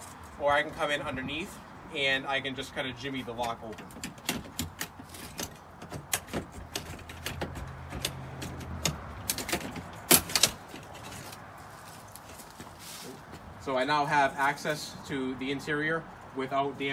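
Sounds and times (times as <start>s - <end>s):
metal tool scraping door latch: 3.4s - 11.2s.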